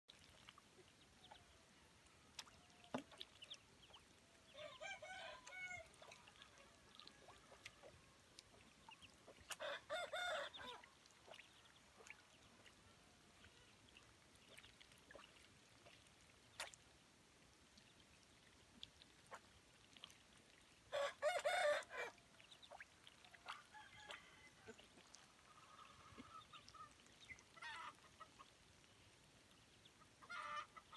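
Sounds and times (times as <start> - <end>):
ducks dabbling soft clicks: 0.1 - 1.4, 2.3 - 4.2, 5.4 - 9.7, 13.4 - 16.9, 17.7 - 20.8, 22.3 - 29.6
ducklings peeping: 2.4 - 4.7, 7.0 - 9.6, 10.4 - 16.7, 22.4 - 23.6.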